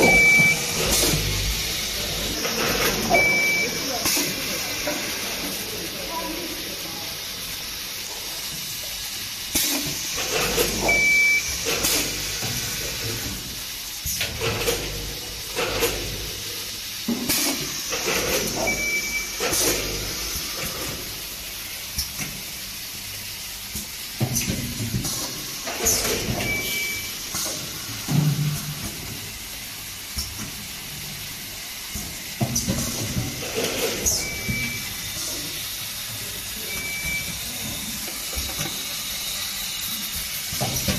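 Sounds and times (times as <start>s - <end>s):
short high beep: 0.0s - 0.6s, 3.1s - 3.9s, 36.6s - 37.4s
pneumatic air hiss: 0.0s - 5.5s, 7.4s - 22.6s, 30.0s - 40.9s
steady machine hum: 0.0s - 9.5s.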